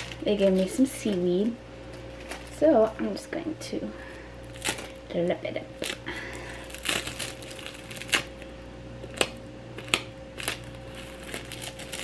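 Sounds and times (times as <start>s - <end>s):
seaweed sheets tearing and crinkling: 0.0s - 2.8s, 4.1s - 5.1s, 5.8s - 12.0s.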